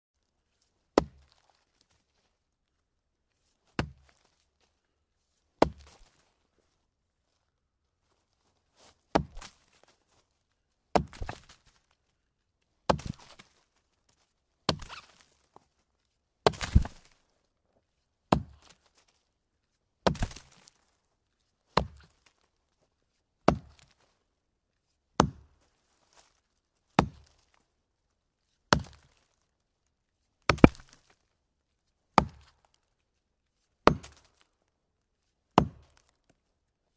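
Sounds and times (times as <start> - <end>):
axe chopping into log: 1.0 - 1.4, 3.8 - 4.1, 5.6 - 6.1, 9.1 - 9.6, 11.0 - 11.6, 12.9 - 13.4, 14.7 - 15.2, 16.4 - 17.1, 18.3 - 18.8, 20.0 - 20.6, 21.8 - 22.1, 23.5 - 23.9, 25.2 - 25.5, 27.0 - 27.3, 28.7 - 29.2, 30.5 - 31.0, 32.2 - 32.5, 33.8 - 34.4, 35.6 - 36.1.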